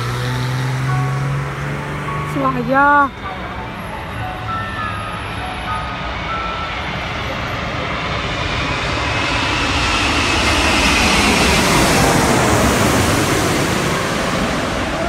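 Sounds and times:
jet engines passing overhead: 0.0s - 15.0s.

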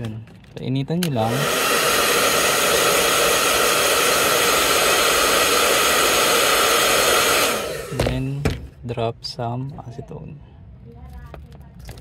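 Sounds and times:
hot-air blower running: 1.0s - 8.7s.

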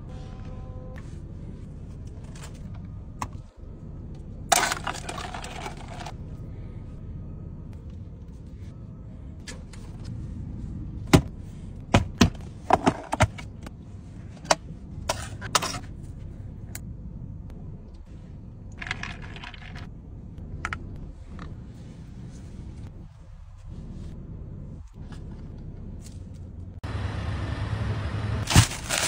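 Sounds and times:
low steady hum: 0.0s - 29.0s.

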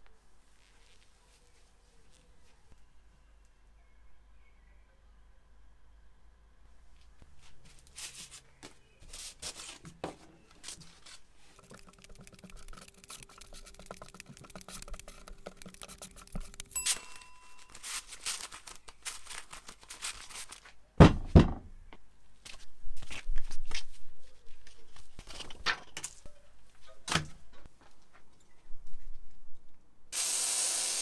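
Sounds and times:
sanding discs rustling: 10.7s - 18.5s.

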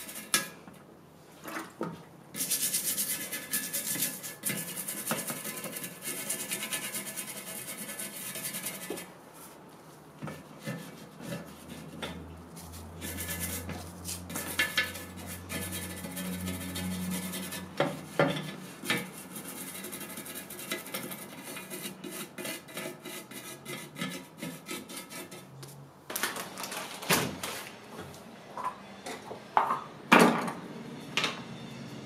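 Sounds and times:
toothbrush scrubbing wood: 2.4s - 9.1s, 10.6s - 25.5s.

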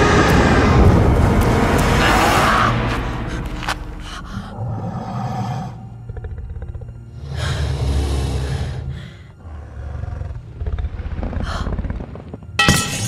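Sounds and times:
deep rumbling growl: 0.0s - 12.5s
film music: 0.0s - 13.0s
breathy growl: 2.0s - 12.4s.

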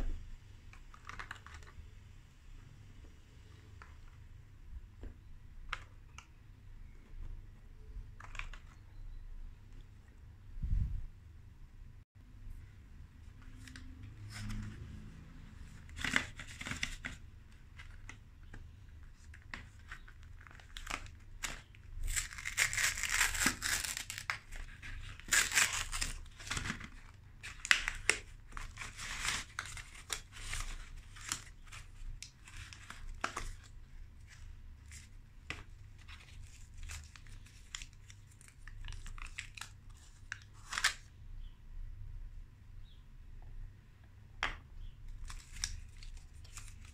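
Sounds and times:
foil wrapper crinkling: 19.9s - 33.7s.

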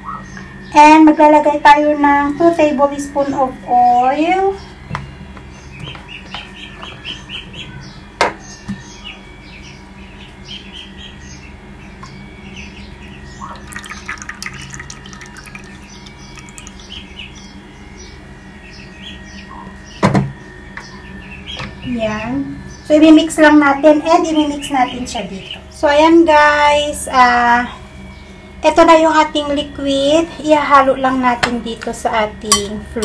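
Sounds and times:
small birds chirping: 0.0s - 0.8s, 4.2s - 31.2s
oil pouring into a bowl: 13.6s - 16.8s.

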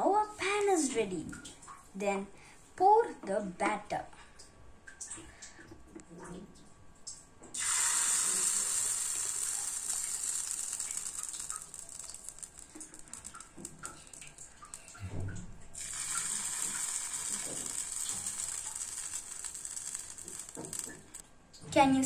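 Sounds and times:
batter sizzling on hot griddle: 7.6s - 14.9s, 15.8s - 21.2s.

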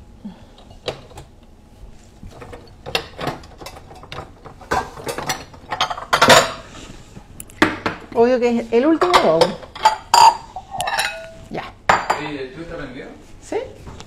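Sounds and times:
kitchenware clattering in cabinet: 2.3s - 6.7s, 9.0s - 12.3s.

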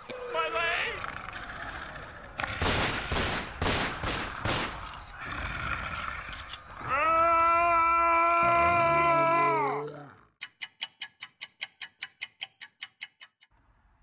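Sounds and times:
long scream: 6.8s - 9.9s.

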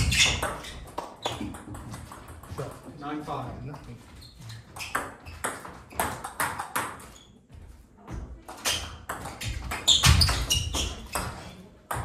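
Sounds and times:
table tennis ball hits: 0.0s - 2.9s, 4.7s - 7.2s, 8.5s - 12.0s.

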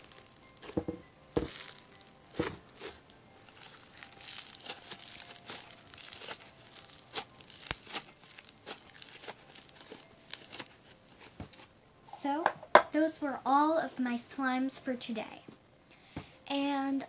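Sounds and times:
crunchy slime crackling and popping: 0.0s - 11.7s.

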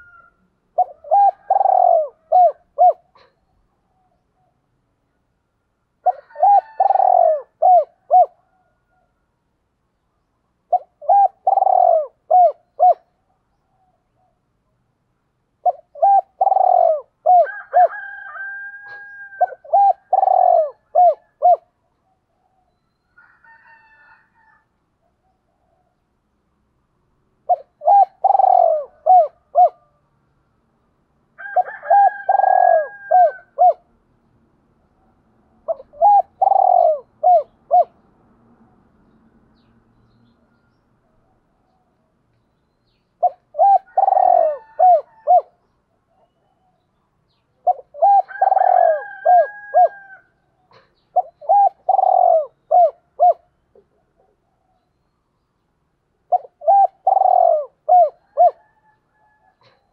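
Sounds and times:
dove cooing: 0.0s - 4.6s, 6.0s - 9.1s, 10.7s - 13.2s, 15.6s - 22.7s, 27.4s - 30.0s, 31.4s - 33.9s, 35.6s - 38.0s, 43.2s - 46.8s, 47.6s - 54.8s, 56.3s - 59.9s.

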